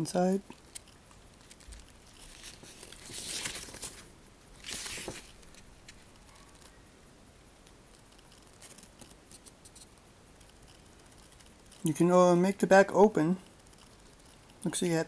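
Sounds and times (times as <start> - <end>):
paper pages rustling: 1.4 - 6.8, 8.0 - 11.9.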